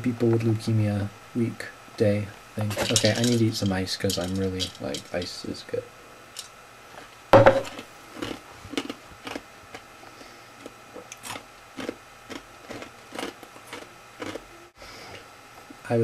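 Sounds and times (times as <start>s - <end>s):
person crunching ice cubes: 7.7s - 9.8s, 10.6s - 14.4s.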